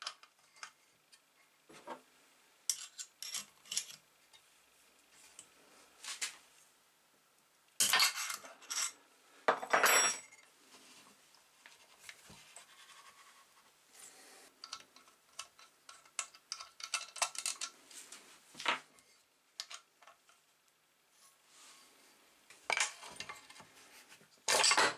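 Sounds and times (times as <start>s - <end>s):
metal tools and parts clinking: 2.7s - 4.0s, 7.8s - 10.4s, 14.6s - 17.7s, 24.5s - 24.9s.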